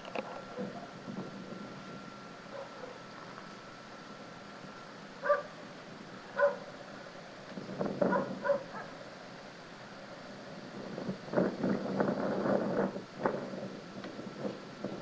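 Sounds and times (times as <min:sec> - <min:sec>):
dog barking: 0:02.5 - 0:03.0, 0:05.2 - 0:05.5, 0:06.4 - 0:06.6, 0:08.1 - 0:09.0.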